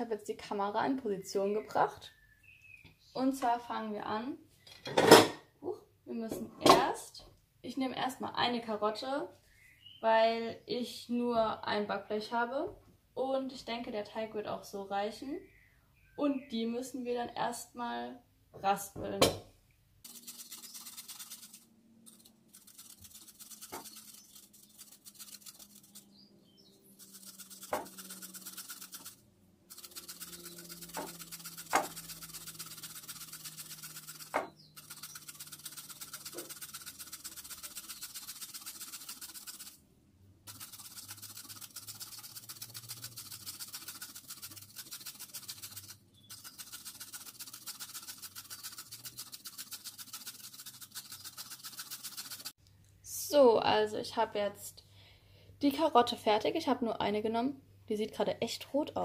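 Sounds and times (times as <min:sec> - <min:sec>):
carrot grating on metal grater: 0:20.1 - 0:26.1, 0:27.0 - 0:39.8, 0:40.5 - 0:52.5.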